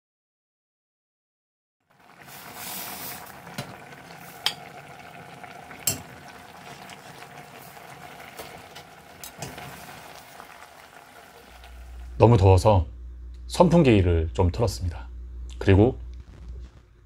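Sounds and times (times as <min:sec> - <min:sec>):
stew bubbling in a pot: 0:01.8 - 0:12.2.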